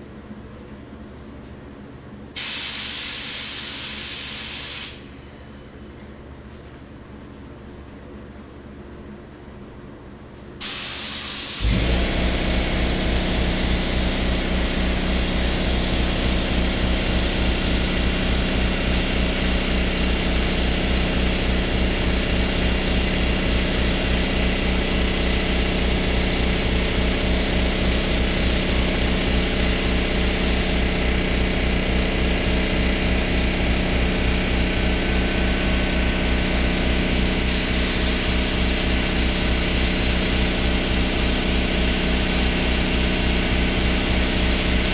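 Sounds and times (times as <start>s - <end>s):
spray gun hissing: 2.4s - 5.0s, 10.6s - 30.8s, 37.5s - 44.9s
air compressor pulsing: 2.4s - 5.4s, 10.6s - 44.9s.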